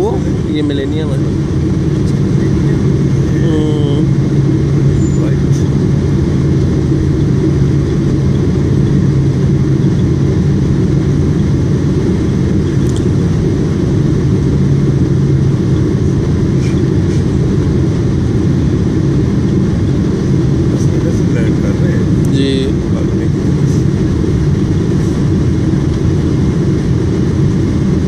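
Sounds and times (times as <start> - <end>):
jet engines and airflow roar: 0.0 - 28.0
steady low hum: 0.0 - 28.0.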